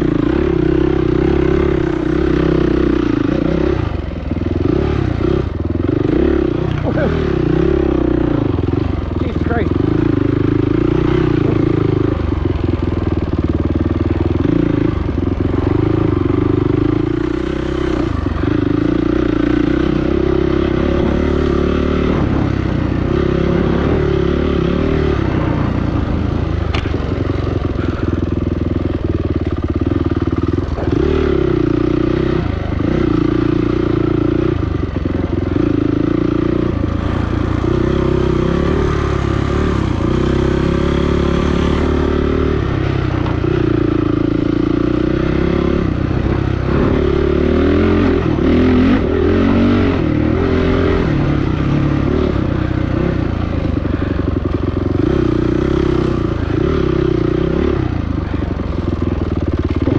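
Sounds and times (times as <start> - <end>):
dirt bike engine revving: 0.0 - 59.9
bike knocks and clatter: 26.7 - 27.2.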